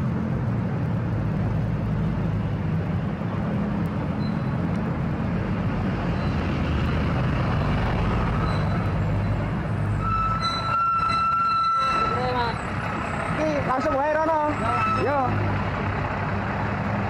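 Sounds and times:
road noise: 0.0 - 17.0
truck diesel engine passing: 0.0 - 17.0
steady high tone: 14.3 - 15.5.

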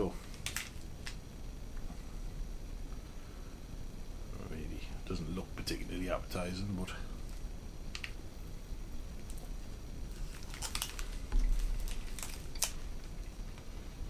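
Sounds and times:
chewing crunchy candy bar: 9.1 - 13.7.

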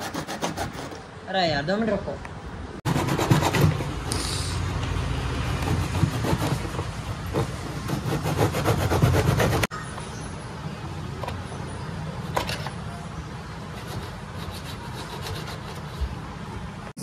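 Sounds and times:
hacksaw sawing plastic: 0.0 - 1.0, 2.9 - 3.9, 5.6 - 9.7, 13.8 - 16.2.

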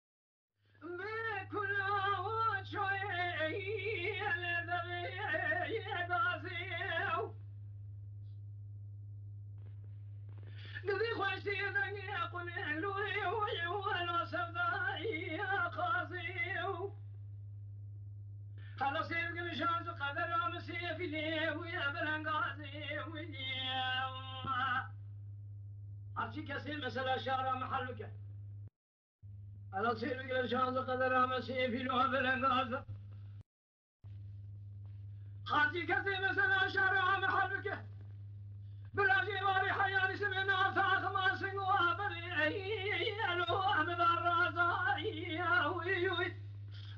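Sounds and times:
steady low hum: 0.6 - 33.4, 34.0 - 46.9
person singing unaccompanied: 0.9 - 7.3, 10.8 - 16.9, 39.0 - 46.3.

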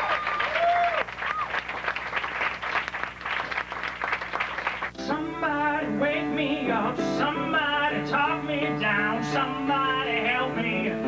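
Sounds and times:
applause: 0.0 - 5.0
man singing: 5.0 - 11.0.

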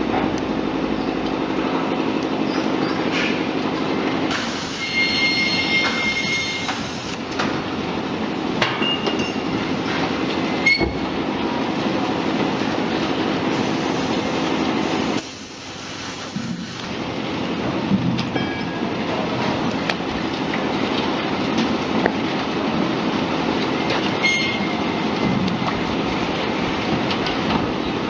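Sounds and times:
high squeals: 4.7 - 6.8.

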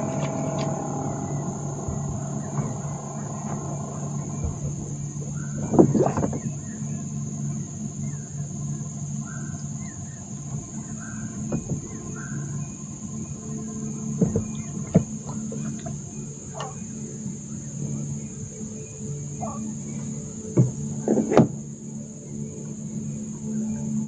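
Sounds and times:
bird calling: 0.0 - 8.4, 9.1 - 12.9, 14.2 - 20.4
high-pitched whine: 0.0 - 24.0
steady low hum: 0.0 - 24.0.

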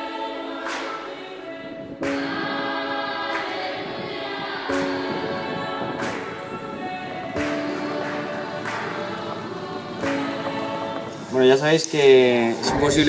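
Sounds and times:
choir-like voices holding chords: 0.0 - 13.0
sharp hits: 12.6 - 13.0.

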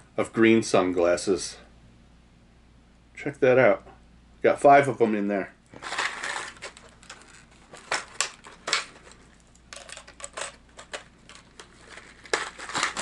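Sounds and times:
plastic lures clicking and clattering: 5.8 - 13.0.

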